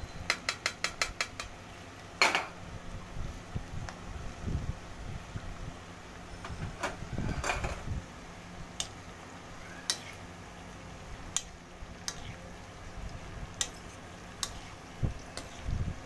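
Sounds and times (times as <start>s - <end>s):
spoon scraping metal pan: 12.0s - 12.4s.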